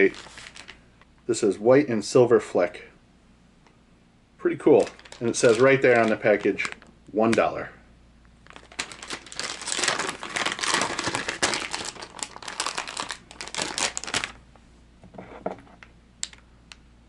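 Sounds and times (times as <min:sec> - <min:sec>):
plastic package crinkling: 0:00.0 - 0:00.8, 0:04.6 - 0:07.6, 0:08.4 - 0:14.4.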